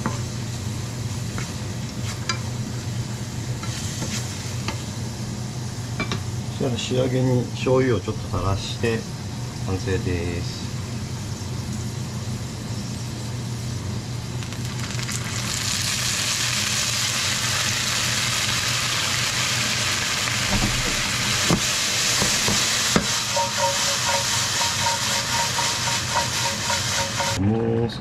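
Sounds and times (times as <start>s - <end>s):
food sizzling in a frying pan: 0.0s - 6.1s, 10.1s - 27.4s
pan knocking: 20.5s - 27.4s.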